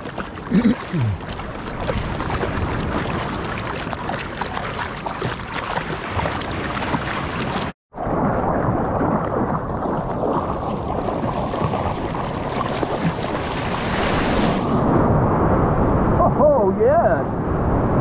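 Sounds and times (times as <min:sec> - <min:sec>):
water splashing around surfboard: 0:00.0 - 0:14.8.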